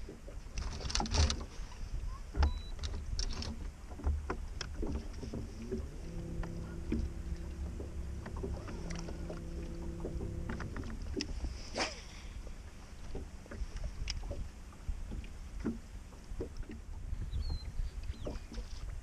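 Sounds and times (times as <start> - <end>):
low rumble of wind and water: 0.0 - 19.0
electric trolling motor humming: 4.7 - 11.7.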